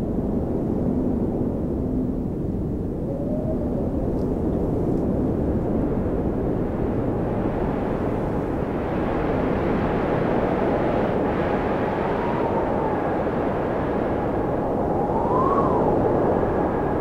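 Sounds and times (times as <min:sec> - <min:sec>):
faint howling tone: 0:00.2 - 0:06.0, 0:10.4 - 0:17.0
snowstorm wind rushing: 0:00.2 - 0:17.0.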